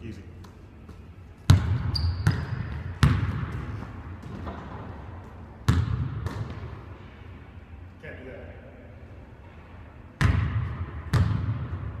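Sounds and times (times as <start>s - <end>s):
basketball bouncing on court: 0.4s - 6.8s, 10.2s - 12.0s.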